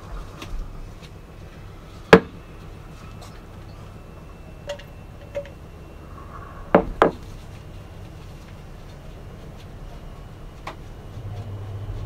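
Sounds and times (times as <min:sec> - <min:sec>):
sharp metal knocks: 0:02.1 - 0:02.4, 0:06.7 - 0:07.2.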